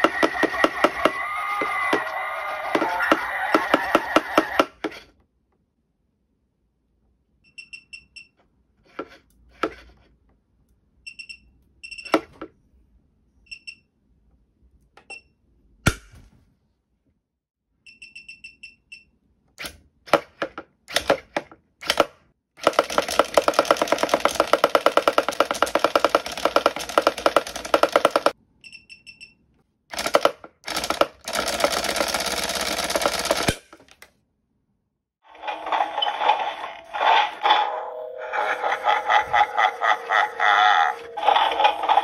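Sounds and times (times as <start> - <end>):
distorted toy sound effects: 0.0 - 4.8, 35.3 - 42.0.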